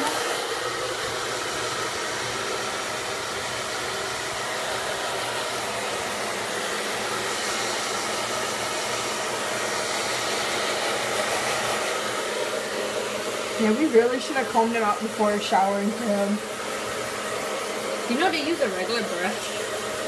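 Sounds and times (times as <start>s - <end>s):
hair dryer running: 0.0s - 20.0s.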